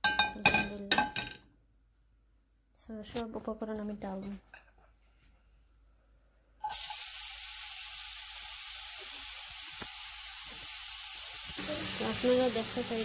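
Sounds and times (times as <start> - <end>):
onion sizzling in hot oil: 6.6 - 13.0.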